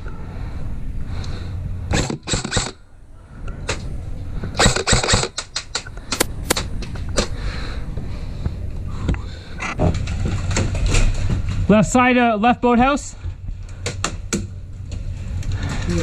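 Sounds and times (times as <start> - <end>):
airsoft guns firing: 4.6 - 6.7.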